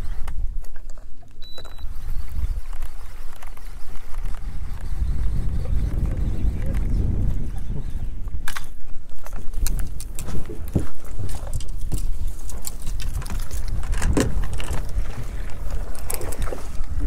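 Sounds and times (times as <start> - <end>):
knocks and rattles on boat: 5.7 - 17.0.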